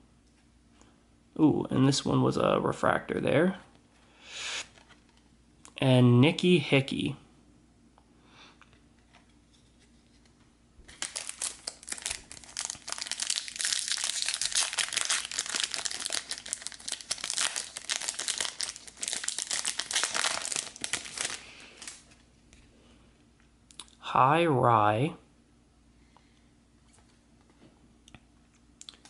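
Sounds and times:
foil wrapper tearing and crinkling: 10.9 - 22.1.

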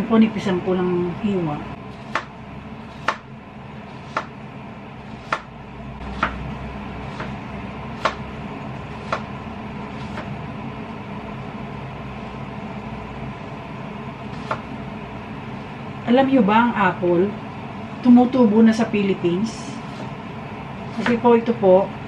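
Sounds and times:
low steady hum: 0.0 - 22.0
knife slicing an apple: 2.0 - 3.3, 3.9 - 4.4, 5.0 - 6.4, 7.0 - 8.3, 8.9 - 9.3, 9.9 - 10.3, 14.3 - 14.7, 20.9 - 21.2.

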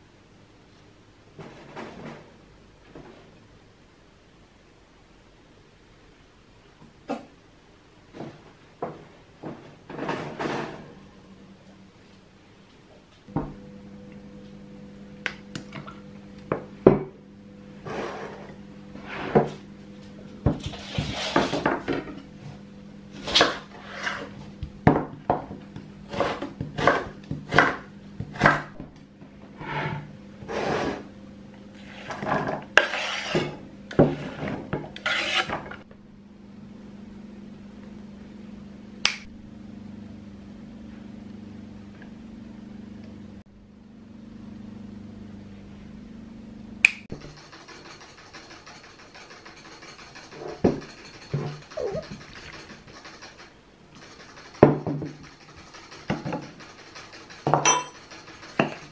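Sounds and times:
steady low hum: 0.0 - 58.9
utensils knocking and scraping: 47.2 - 58.9.

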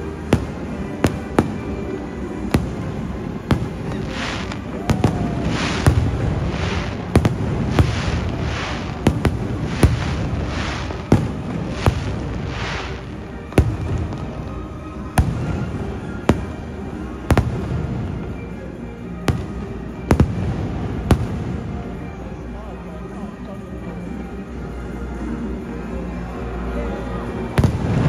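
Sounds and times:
firework crackling: 0.0 - 18.5, 19.3 - 22.1, 27.6 - 28.0.

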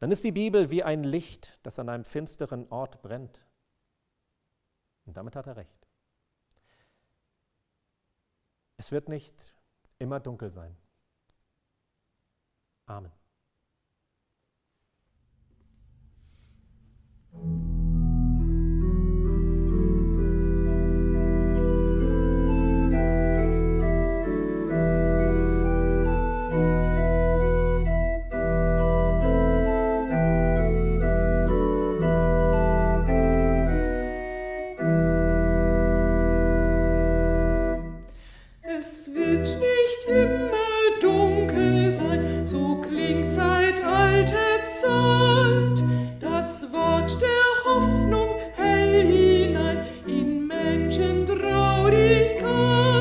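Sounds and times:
pipe organ chords: 17.2 - 53.0
people singing: 38.7 - 53.0.

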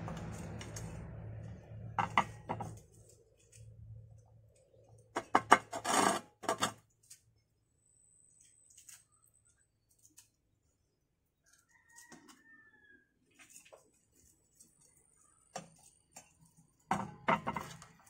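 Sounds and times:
rooster crowing: 11.4 - 13.2
potting soil rustling: 13.2 - 18.0.

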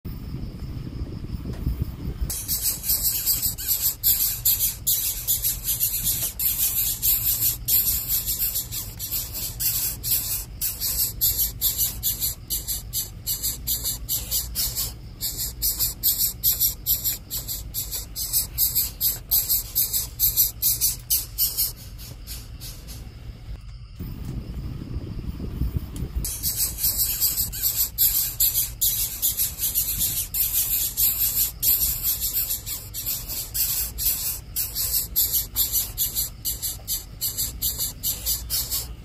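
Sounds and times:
insects trilling: 0.1 - 39.0
low hum: 18.8 - 26.5.

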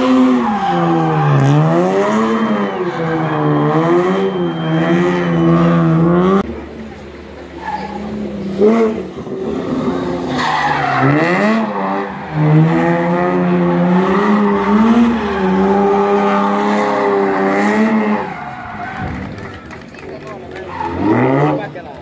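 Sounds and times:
tyre squeal: 0.0 - 6.0, 7.5 - 8.2
rally car engine revving: 0.0 - 22.0.

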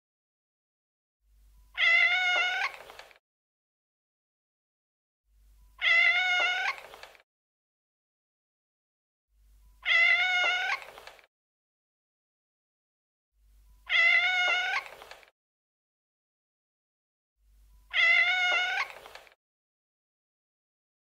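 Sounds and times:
cat meowing: 1.8 - 2.9, 5.8 - 7.0, 9.8 - 11.0, 13.9 - 15.1, 17.9 - 19.2.

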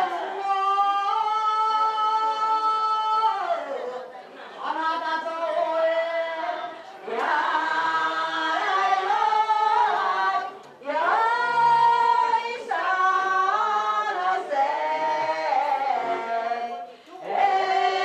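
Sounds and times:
women and girls chanting: 0.0 - 18.0
singers breathing in: 16.9 - 17.2.

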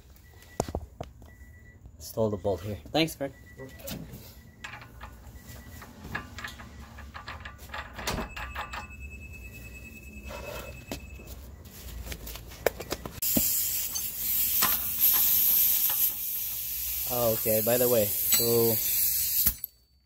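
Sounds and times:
compressed air hiss: 13.2 - 19.6.

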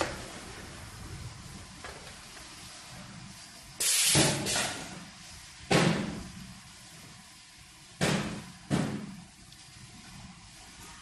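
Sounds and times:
pneumatic cylinder clunk: 3.8 - 5.1
pneumatic air hiss: 3.8 - 6.5.

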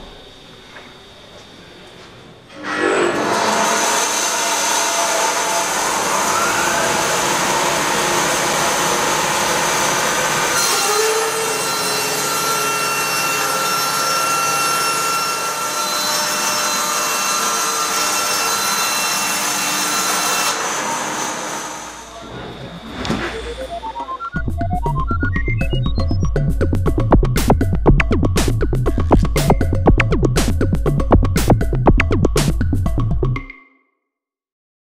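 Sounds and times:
band saw cutting wood: 2.5 - 22.2
rising whine: 21.8 - 30.8.

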